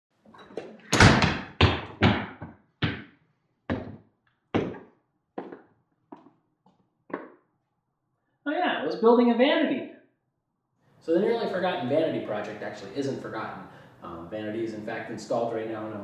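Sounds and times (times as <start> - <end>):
footsteps on wooden stairs: 0.4 - 3.1, 3.7 - 4.0, 4.6 - 6.3.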